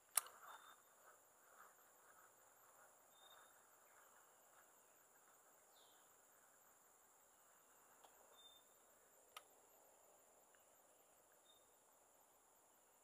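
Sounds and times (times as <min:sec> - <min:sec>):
high insect drone: 0:00.0 - 0:13.0
sharp click: 0:00.1 - 0:00.4
faint high chirps: 0:01.6 - 0:06.6, 0:08.0 - 0:09.5, 0:10.4 - 0:12.0.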